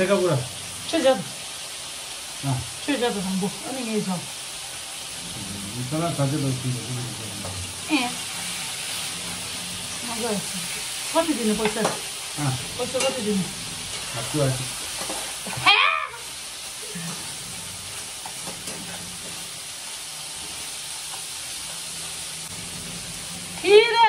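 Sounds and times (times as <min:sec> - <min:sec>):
food sizzling in a pan: 0:00.0 - 0:24.0
voices: 0:05.3 - 0:08.3, 0:10.0 - 0:14.7, 0:23.6 - 0:24.0
loud high-pitched exclamation: 0:15.6 - 0:16.4.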